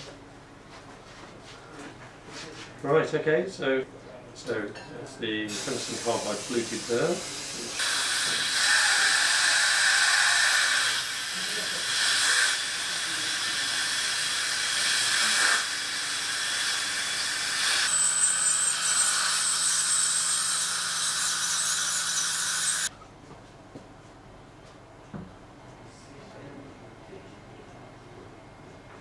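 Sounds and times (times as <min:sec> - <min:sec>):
dental suction hissing: 0:05.5 - 0:22.9.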